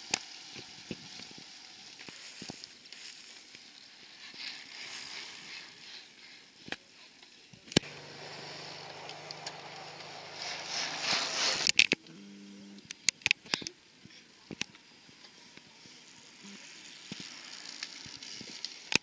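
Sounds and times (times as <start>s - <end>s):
bicycle passing by: 0.0s - 6.6s, 7.8s - 11.8s, 15.8s - 19.0s
wind: 0.0s - 19.0s
low steady hum: 7.8s - 12.8s.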